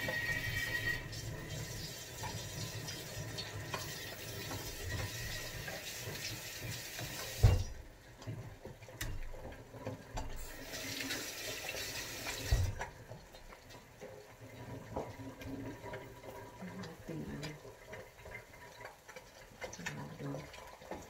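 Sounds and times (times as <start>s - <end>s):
tap running into sink: 0.0s - 7.8s, 10.1s - 13.1s.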